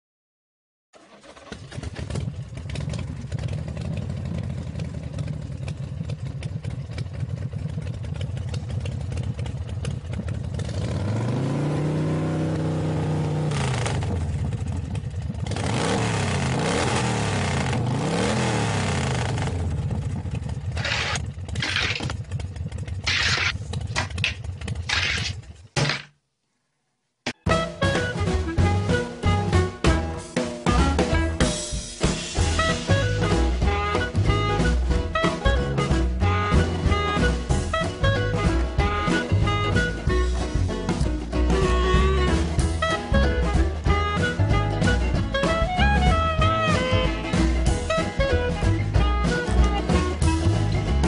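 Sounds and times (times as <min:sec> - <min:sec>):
engine revving: 0:08.6 - 0:25.3, 0:32.4 - 0:51.0.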